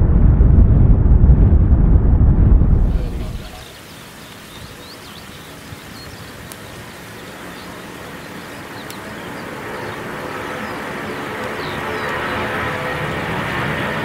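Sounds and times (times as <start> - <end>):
jet engines roaring: 0.0 - 14.0
small birds chirping: 2.8 - 13.0.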